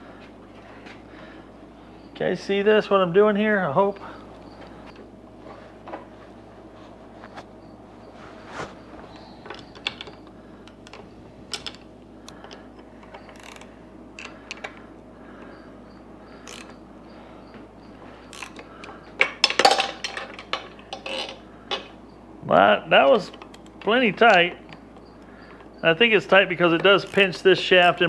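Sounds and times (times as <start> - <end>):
ratchet wrench clicking: 13.2 - 14.6, 16.4 - 16.8, 18.3 - 18.7.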